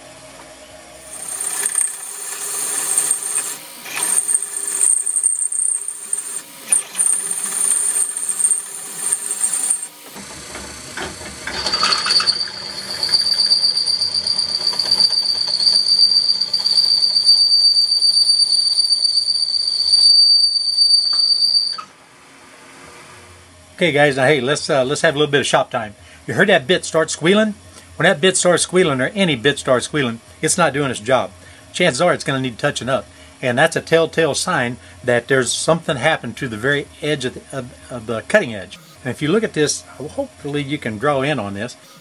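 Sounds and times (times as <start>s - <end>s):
drill bit squealing in steel: 1.0s - 10.2s, 11.4s - 21.9s.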